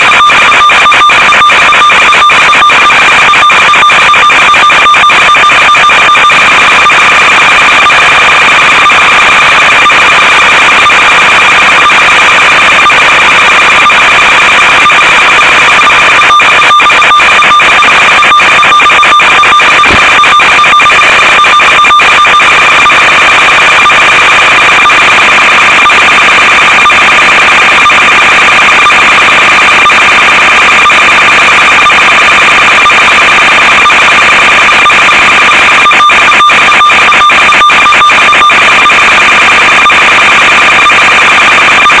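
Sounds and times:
electronic buzz and static: 0.0s - 42.0s
radio crackles: 0.0s - 42.0s
high whine: 19.2s - 32.2s.

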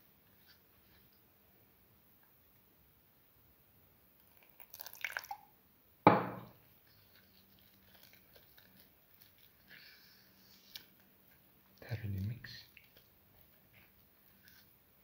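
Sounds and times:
sharp knock: 6.1s - 6.5s
spoon stirring thick batter: 6.6s - 15.0s.

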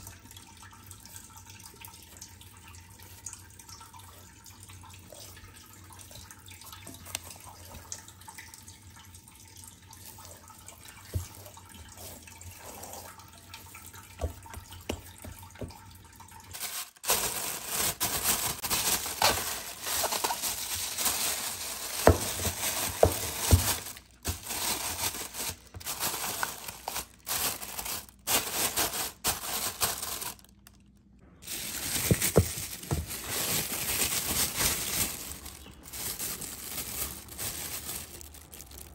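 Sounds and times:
hands kneading wet dough: 9.3s - 38.9s
plastic bag rustling: 10.0s - 15.4s, 16.5s - 38.9s.

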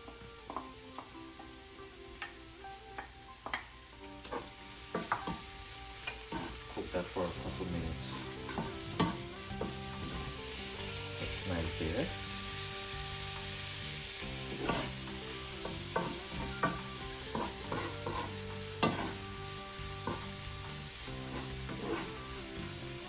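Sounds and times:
vegetables sizzling in oil: 0.0s - 23.0s
wooden spatula scraping pan: 4.2s - 12.5s, 14.3s - 22.4s.

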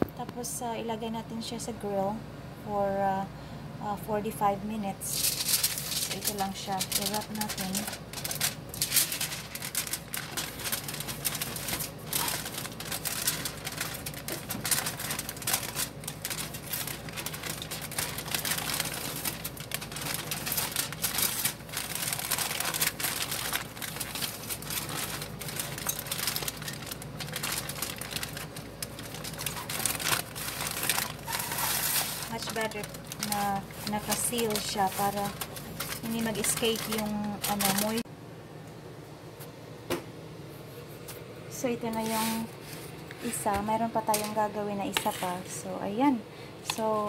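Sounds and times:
aluminium foil crinkling: 4.8s - 38.1s, 41.8s - 45.6s.

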